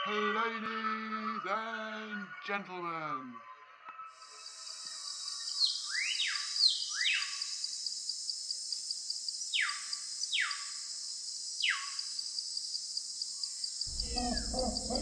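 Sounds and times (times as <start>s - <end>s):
high insect drone with ticking: 4.2s - 15.0s
bird whistling falling calls: 5.6s - 7.3s.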